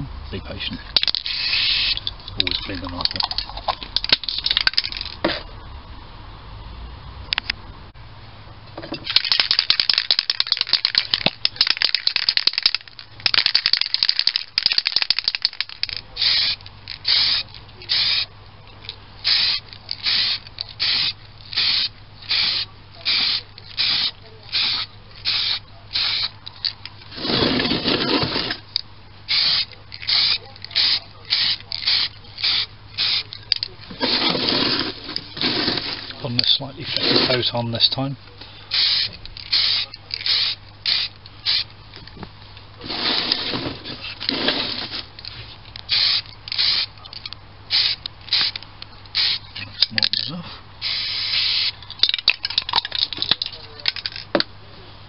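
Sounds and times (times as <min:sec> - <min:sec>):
aerosol spray can hissing: 0:29.3 - 0:33.2, 0:38.7 - 0:41.7, 0:45.9 - 0:46.9, 0:50.8 - 0:51.8.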